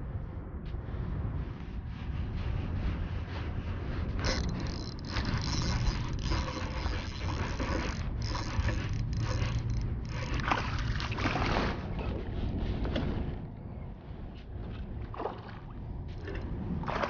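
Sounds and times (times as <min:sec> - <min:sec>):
low wind rumble: 0:00.0 - 0:17.0
fishing reel clicking: 0:04.2 - 0:11.1.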